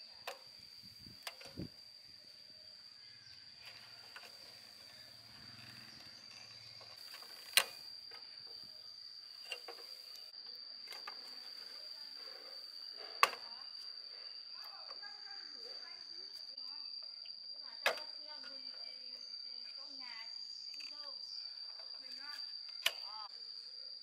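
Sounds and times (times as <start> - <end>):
high-pitched insect trill: 0.0 - 24.0.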